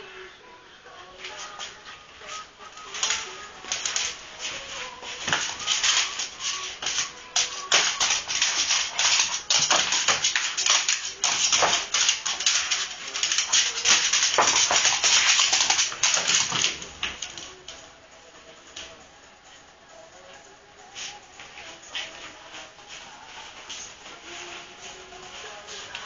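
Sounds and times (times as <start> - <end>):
dog claws tapping on wooden floor: 5.2 - 17.4.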